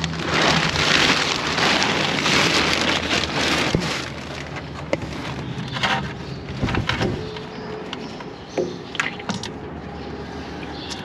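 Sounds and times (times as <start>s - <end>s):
plastic sheeting crinkling: 0.0s - 7.4s.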